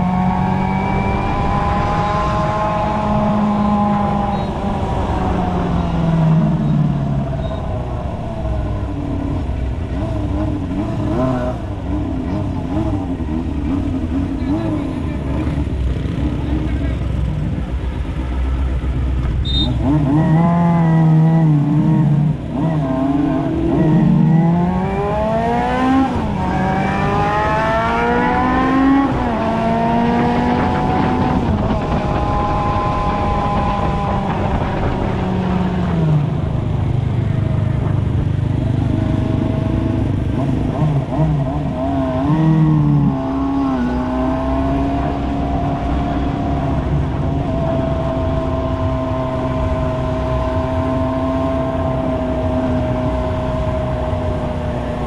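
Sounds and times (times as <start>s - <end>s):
motorcycle engine revving: 0.0s - 55.0s
wind and road noise: 0.0s - 55.0s.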